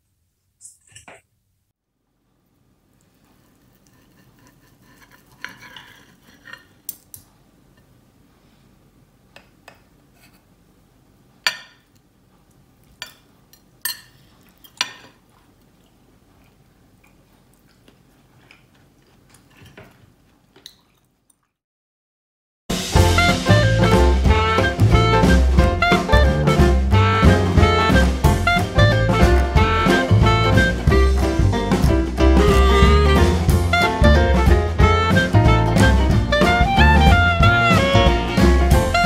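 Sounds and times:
knife and fork scraping a plate: 3.4s - 7.1s, 10.1s - 10.5s.

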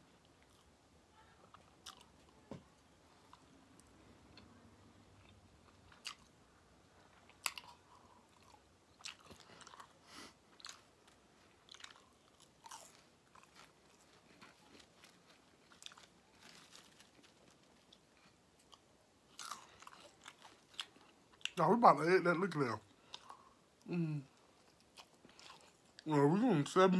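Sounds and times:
close-up chewing: 1.4s - 2.4s, 5.2s - 6.4s, 7.0s - 21.6s, 22.9s - 26.1s.

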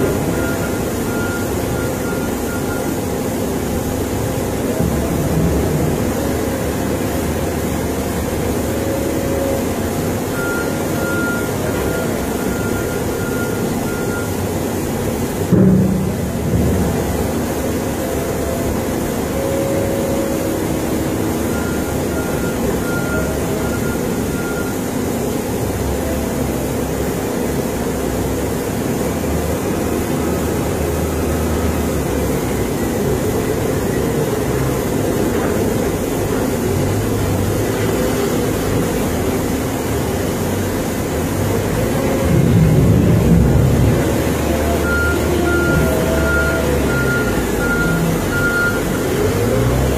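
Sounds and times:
reversing alarm beeping: 0.0s - 15.0s, 16.6s - 25.0s, 43.5s - 49.9s
wheel loader diesel engine: 0.0s - 49.9s.

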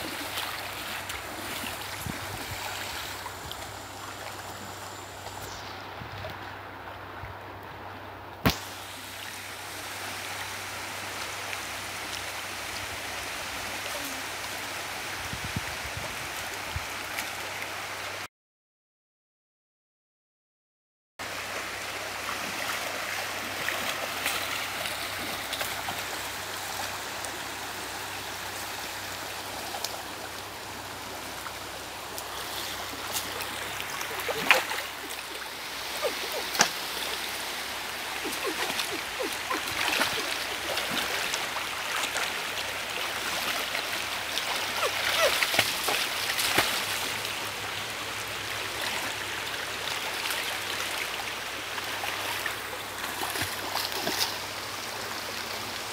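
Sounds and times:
water sloshing and splashing: 29.6s - 47.6s, 51.8s - 54.5s.

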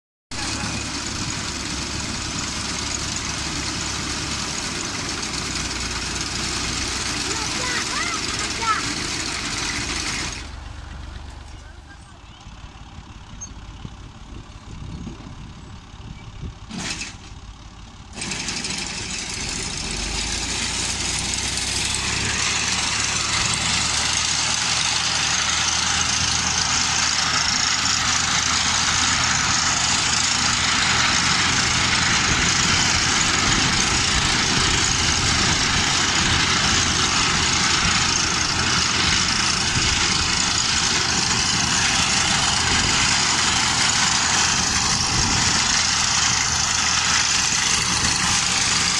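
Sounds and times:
tractor engine hum: 0.3s - 48.9s
reaper mechanical din: 18.1s - 24.0s.

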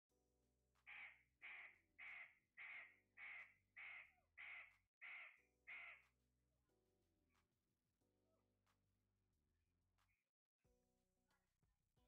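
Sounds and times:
parakeet squawking: 0.9s - 6.0s.

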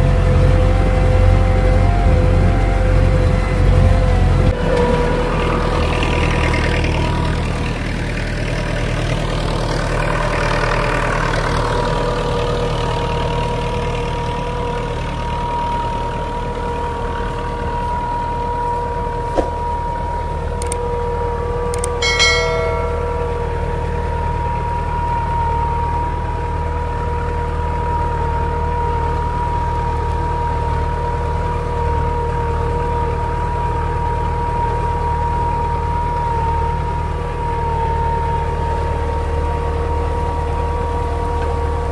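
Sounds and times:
tractor diesel engine under load: 0.0s - 41.9s
brief metallic ring: 21.9s - 23.6s.

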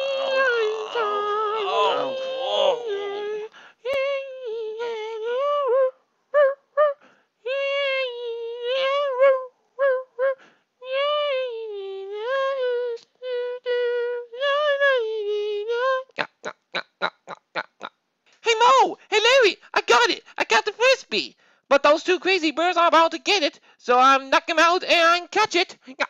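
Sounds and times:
cartoon voice humming: 0.0s - 3.5s.

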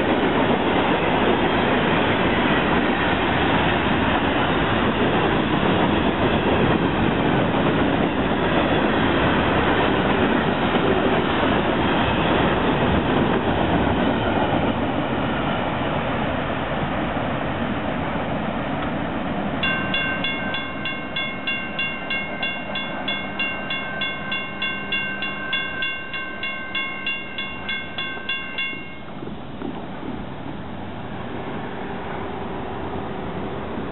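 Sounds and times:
freight train wheels on rails: 0.0s - 33.9s
railroad crossing bell ringing: 19.6s - 29.3s.

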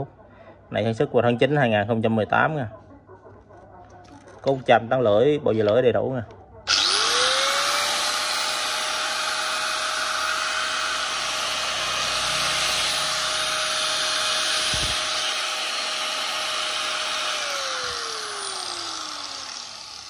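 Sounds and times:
angle grinder motor whine: 6.7s - 20.0s.

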